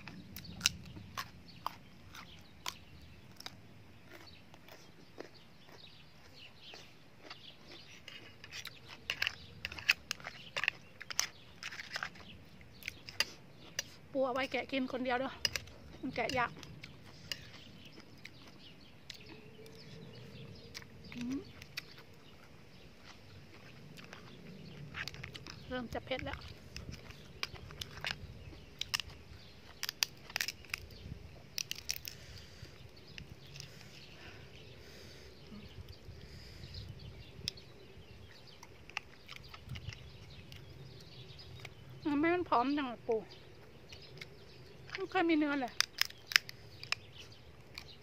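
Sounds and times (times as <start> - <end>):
chewing crab: 0.0 - 42.1, 43.3 - 48.0
crab shell cracking: 15.4 - 34.1, 45.7 - 48.0.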